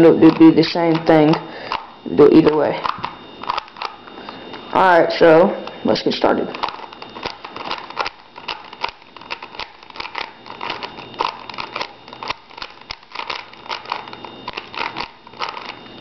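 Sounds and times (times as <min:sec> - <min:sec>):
puzzle cube clicking: 0:06.5 - 0:15.8.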